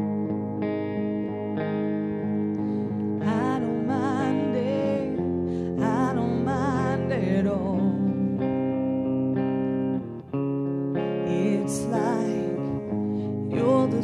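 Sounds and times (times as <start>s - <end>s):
guitar: 0.0s - 14.0s
person singing with vibrato: 2.7s - 8.9s, 11.0s - 14.0s.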